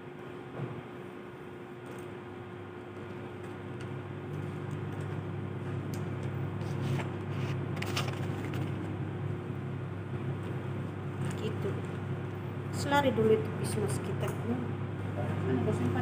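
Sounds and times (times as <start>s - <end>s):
steady low hum: 0.0s - 16.0s
bag and plastic mailer rustling: 6.8s - 8.8s.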